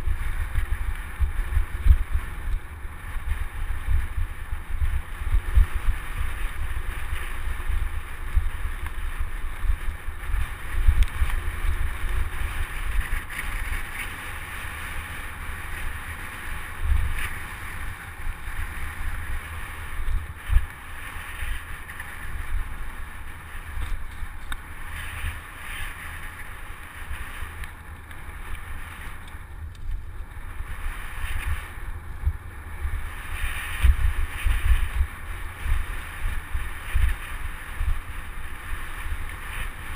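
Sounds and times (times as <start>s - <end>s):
bike tyres on dirt: 0.0s - 39.9s
wind buffeting microphone: 0.0s - 39.9s.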